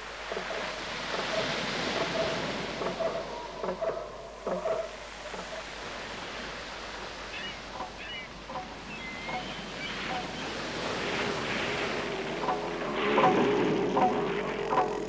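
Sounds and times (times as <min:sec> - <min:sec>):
steady wind: 0:00.0 - 0:15.0
surf washing on shore: 0:00.0 - 0:15.0.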